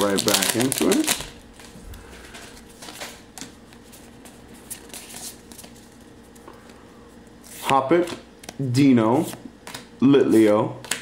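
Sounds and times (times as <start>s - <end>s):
trading cards being handled: 0.0s - 11.0s.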